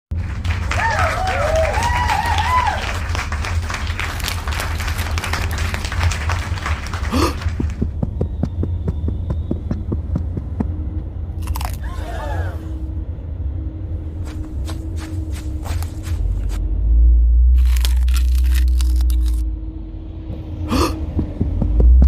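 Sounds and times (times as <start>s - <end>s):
low rumble of traffic: 2.8s - 22.0s
voice-like calls: 11.6s - 12.9s.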